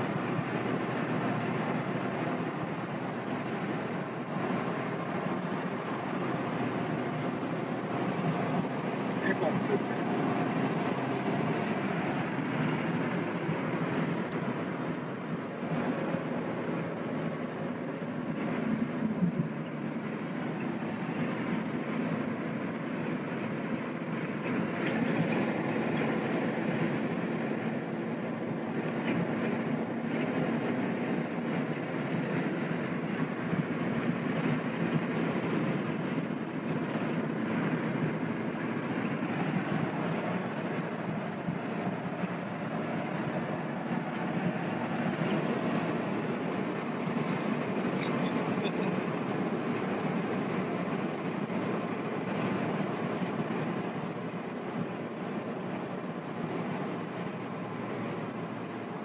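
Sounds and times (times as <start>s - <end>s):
road and tyre noise in car: 0.0s - 59.0s.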